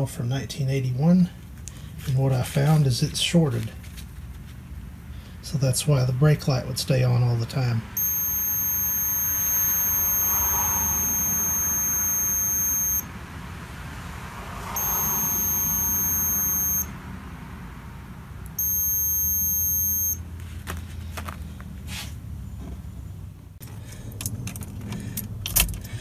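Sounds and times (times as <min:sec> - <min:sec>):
multimeter continuity beep: 0:08.0 - 0:13.1, 0:14.6 - 0:17.0, 0:18.4 - 0:20.2.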